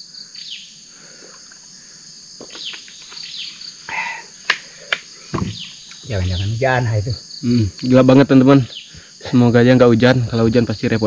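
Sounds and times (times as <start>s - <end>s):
bird chirps: 0.0s - 0.8s, 2.4s - 4.3s, 5.1s - 7.9s, 8.6s - 9.1s
high insect drone: 0.0s - 11.0s.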